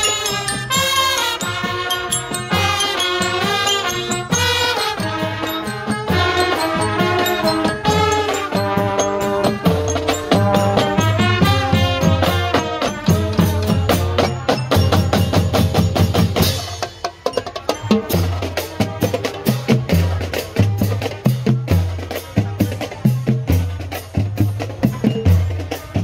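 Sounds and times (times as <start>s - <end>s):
trumpets playing a tune: 0.0s - 15.1s
marching drum line: 0.0s - 26.0s.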